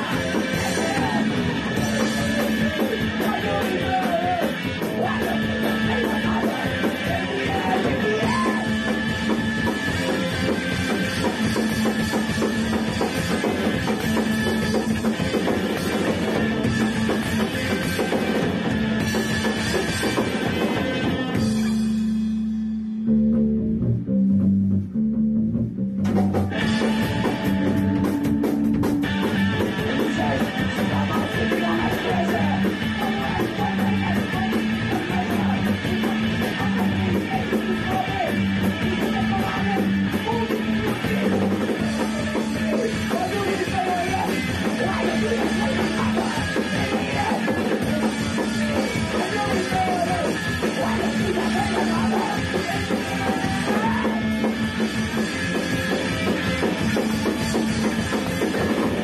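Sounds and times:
drum kit and cymbals: 0.0 - 22.8, 26.0 - 59.0
electric guitar riff: 0.0 - 59.0.

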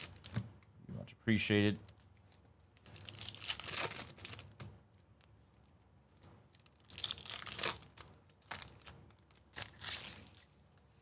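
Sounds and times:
foil wrapper crinkling and tearing: 0.0 - 0.4, 2.8 - 4.6, 6.5 - 10.5.

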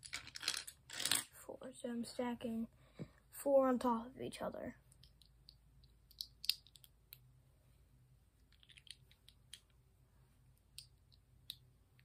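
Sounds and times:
plastic bricks clicking together: 0.0 - 1.2, 4.9 - 7.2, 8.5 - 9.7.

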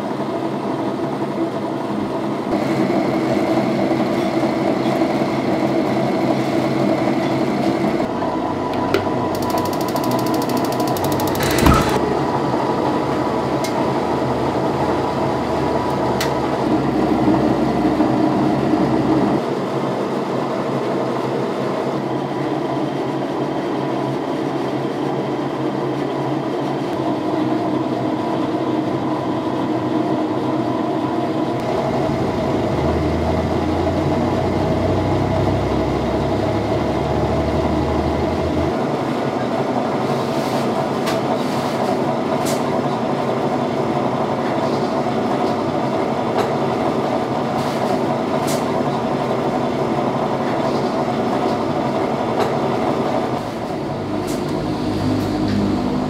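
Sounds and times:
coffee roaster rumbling and rattling: 0.0 - 56.0
sharp clicks: 9.4 - 12.0.

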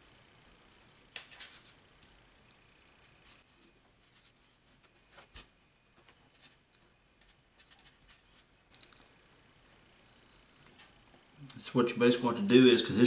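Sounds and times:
cord rustling and scraping: 0.7 - 1.8, 2.6 - 9.1.

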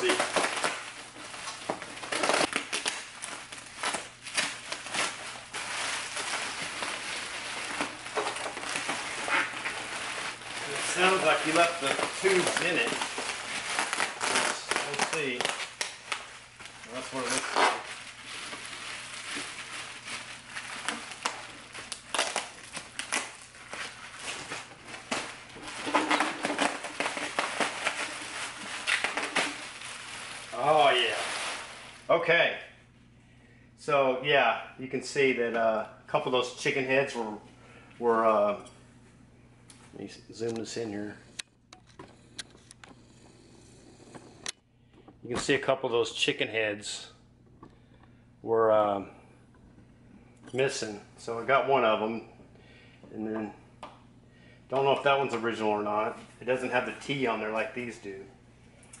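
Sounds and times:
bubble wrap crinkling: 0.0 - 32.2.

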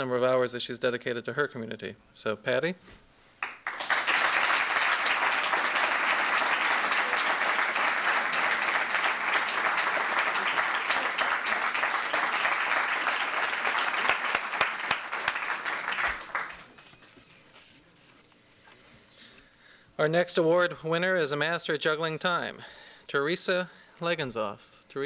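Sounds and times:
audience applause: 3.4 - 17.6.

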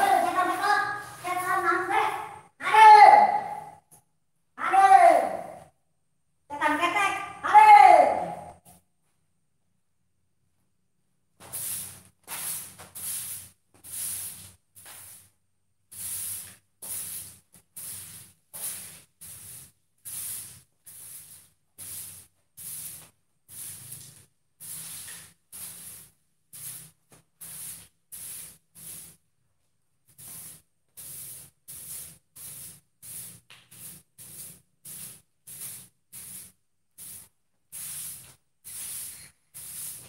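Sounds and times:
broom sweeping a floor: 0.0 - 2.4, 11.4 - 40.0.

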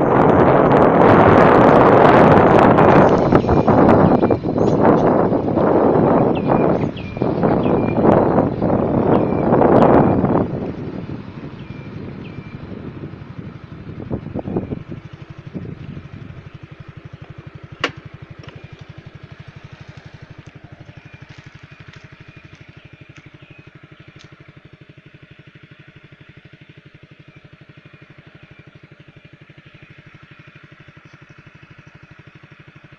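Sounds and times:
small engine idling: 0.0 - 32.9.

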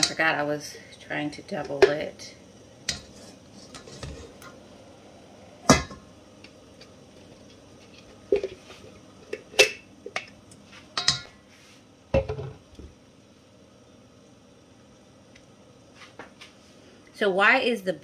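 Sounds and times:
kitchen utensils knocking and clinking: 1.6 - 2.1, 5.7 - 6.0, 8.3 - 8.6, 11.0 - 11.3.

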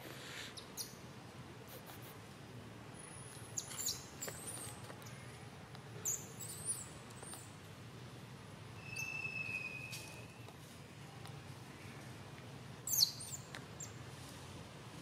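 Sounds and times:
young monkey squeaking: 0.3 - 1.0, 3.6 - 4.8, 6.0 - 7.4, 12.9 - 13.9.

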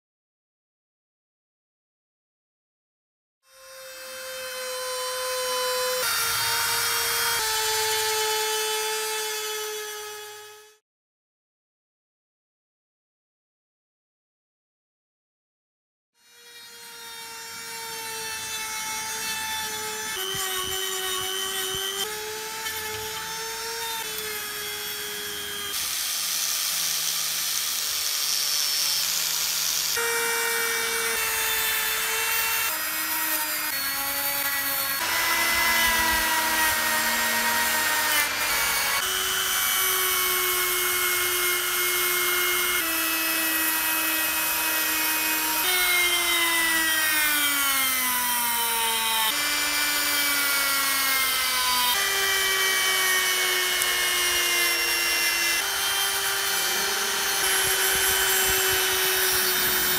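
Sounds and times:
rotary tool motor whine: 35.0 - 39.4, 51.9 - 59.9.

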